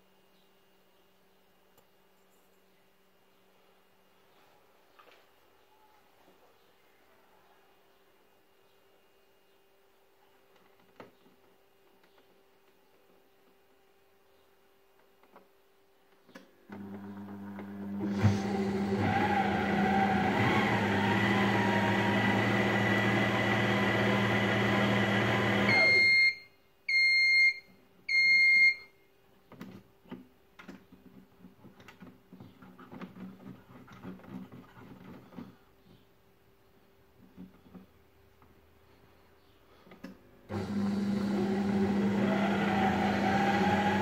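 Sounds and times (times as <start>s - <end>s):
beeps: 25.7s - 28.9s.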